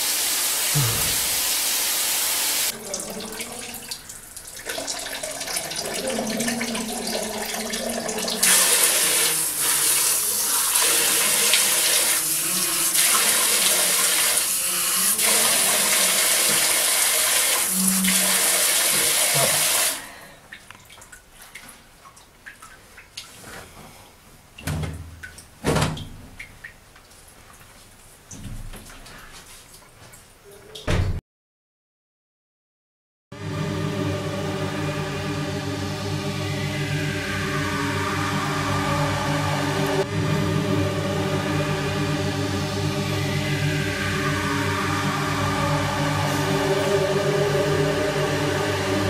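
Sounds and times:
water running from a tap: 0:00.0 - 0:20.0.

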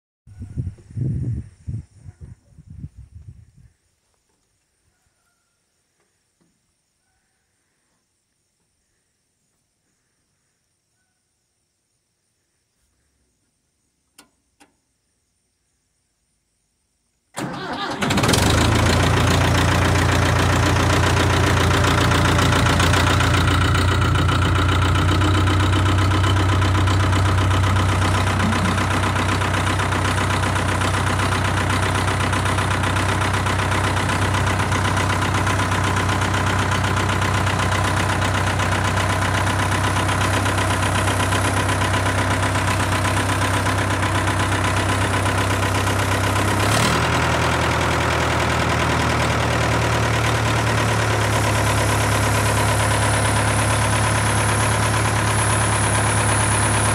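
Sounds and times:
diesel engine cranking and idling: 0:17.4 - 0:56.9.

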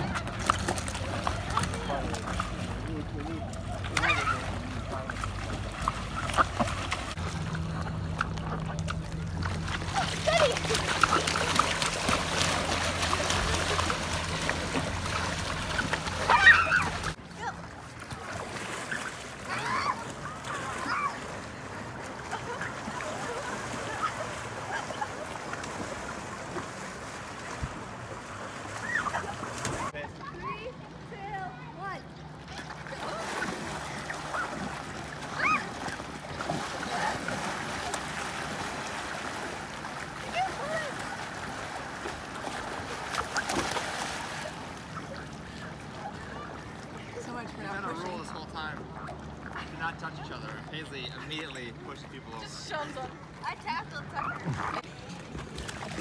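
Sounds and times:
water splashing and sloshing: 0:00.0 - 0:56.0
high-pitched shout: 0:16.2 - 0:17.0.

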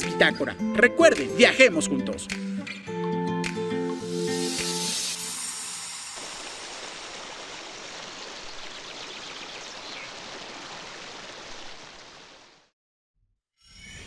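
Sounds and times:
water rushing: 0:04.6 - 0:12.7.

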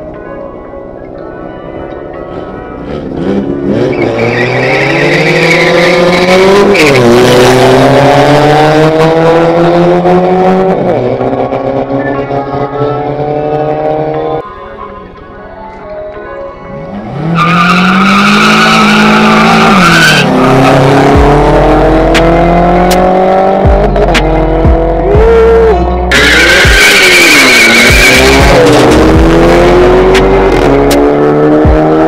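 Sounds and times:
car engines accelerating hard: 0:02.0 - 0:14.4, 0:16.8 - 0:32.0
tyre squeal: 0:03.8 - 0:07.0
background music with steady beat: 0:06.3 - 0:17.3, 0:18.3 - 0:32.0.

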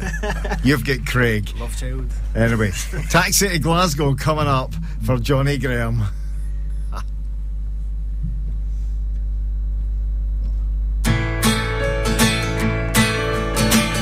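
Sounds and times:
low hum: 0:00.0 - 0:11.4
acoustic guitar strumming chords: 0:11.0 - 0:14.0.

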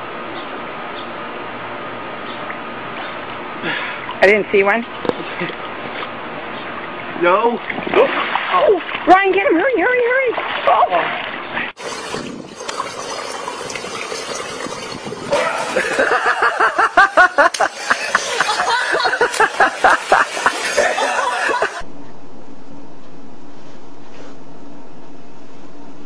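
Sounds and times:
pool water sloshing: 0:03.7 - 0:21.8
person laughing hard: 0:15.3 - 0:21.8
low room hum: 0:15.3 - 0:26.0.

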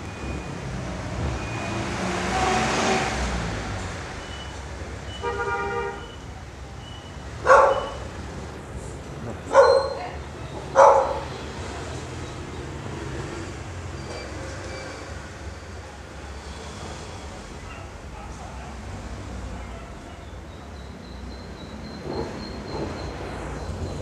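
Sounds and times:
dog barking loudly: 0:07.4 - 0:08.1, 0:09.5 - 0:11.4.

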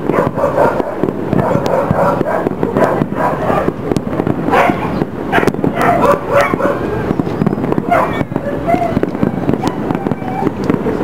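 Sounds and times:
fireworks bursting: 0:00.0 - 0:11.0
fireworks crackle: 0:00.0 - 0:11.0
dog barking: 0:00.1 - 0:03.8, 0:04.5 - 0:06.9, 0:07.8 - 0:09.0.

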